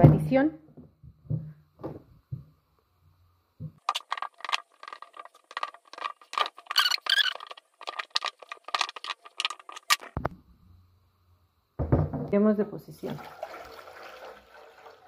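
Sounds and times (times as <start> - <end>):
dull thump: 11.8 - 12.4.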